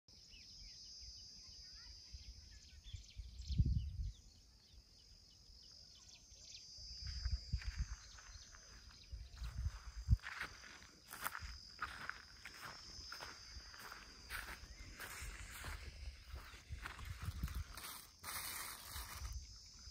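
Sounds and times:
birds chirping: 0.1 - 19.9
high-pitched insect drone: 0.1 - 19.9
wind buffeting microphone: 3.1 - 4.3, 7.0 - 8.4, 9.0 - 18.0.

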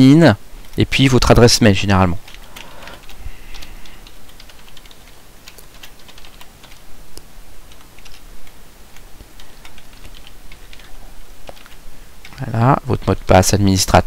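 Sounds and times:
keyboard typing clicks: 2.2 - 13.3.

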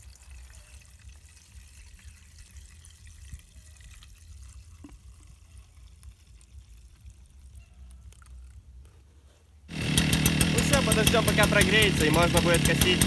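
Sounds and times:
fuel trickling into plastic tank: 0.0 - 8.6.

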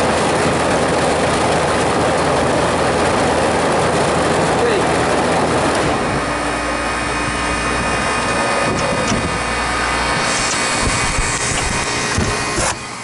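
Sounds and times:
compressor hum: 0.0 - 13.0
rush of air: 5.3 - 13.0.

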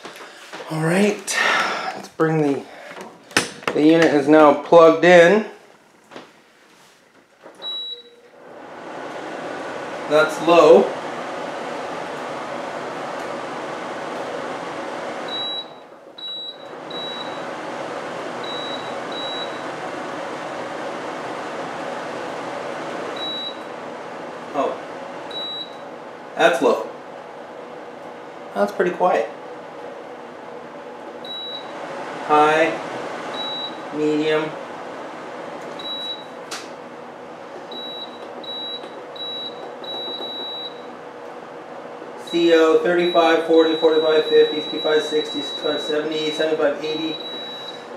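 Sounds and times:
dehumidifier fan humming: 0.0 - 47.9
control panel beeping: 37.7 - 40.9.

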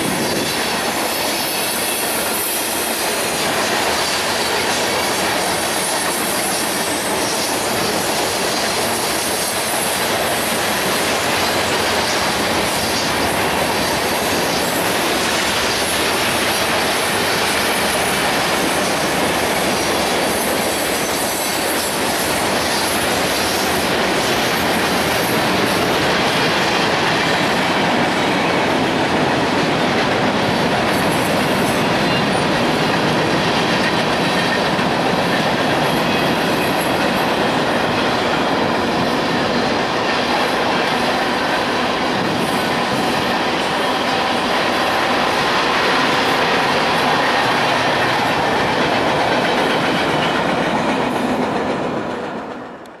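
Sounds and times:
steel wheels running on rail: 0.0 - 53.0.

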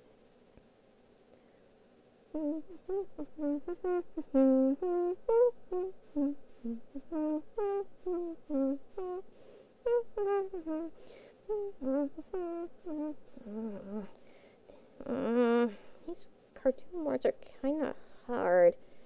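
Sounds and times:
woman humming a bouncy tune: 2.3 - 14.2, 15.0 - 17.3, 18.3 - 18.7.

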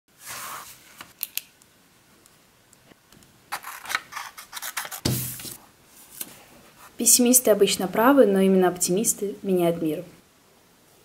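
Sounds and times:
paper rustling: 3.5 - 6.4
dull thump: 5.0 - 5.5.

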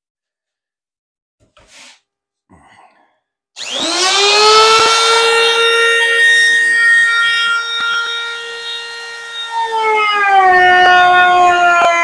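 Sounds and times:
router motor whine: 3.6 - 12.0.

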